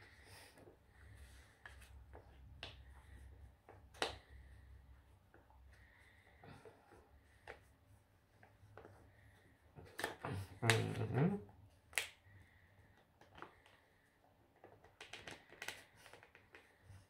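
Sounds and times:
paper crinkling and crackling: 14.6s - 17.0s.

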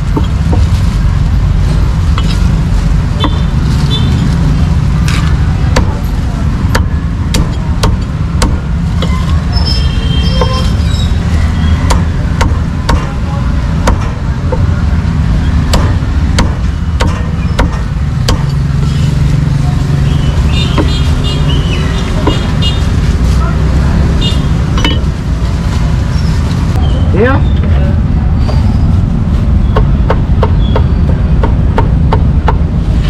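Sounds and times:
street traffic rumble: 0.0s - 33.0s
cleaver chopping on wooden block: 5.7s - 6.0s, 6.7s - 8.6s, 11.9s - 13.1s, 13.8s - 14.7s, 15.7s - 18.5s.

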